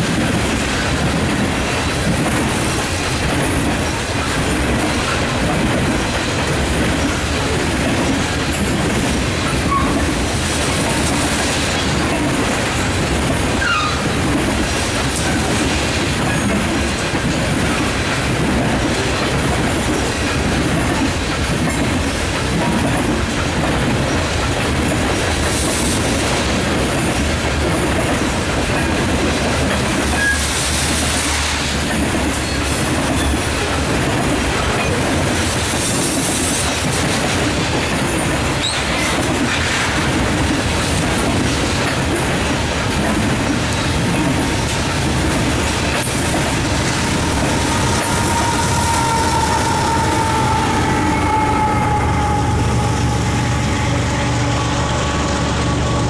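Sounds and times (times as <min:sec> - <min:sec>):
steel wheels rolling on rail: 0:00.0 - 0:56.0.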